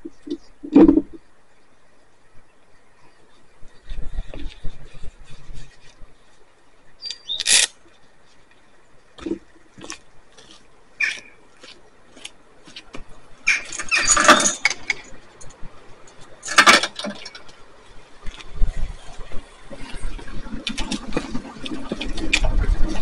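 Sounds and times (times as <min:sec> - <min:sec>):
sled knocking and scraping: 0:00.0 - 0:01.3, 0:12.2 - 0:23.0
short squeaks: 0:13.5 - 0:14.7.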